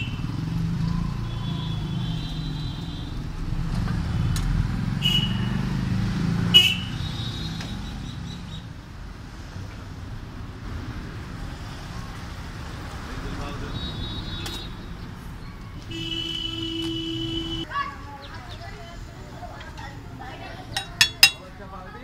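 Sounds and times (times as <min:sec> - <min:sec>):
vehicle engines passing: 0:00.0 - 0:16.0.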